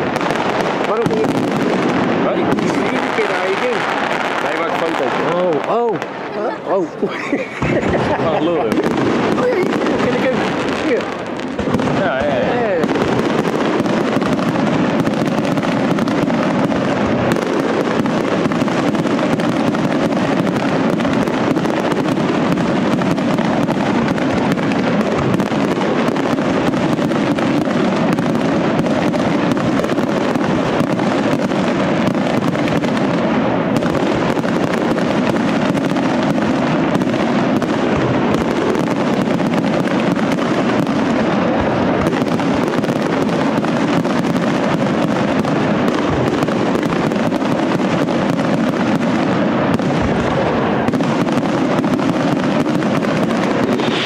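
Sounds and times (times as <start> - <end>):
fireworks bursting and crackling: 0.0 - 54.0.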